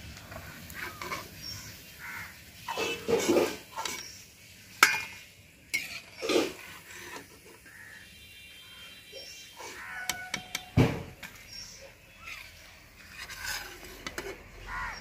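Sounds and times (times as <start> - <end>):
metal skimmer scraping and clinking: 2.7 - 4.1.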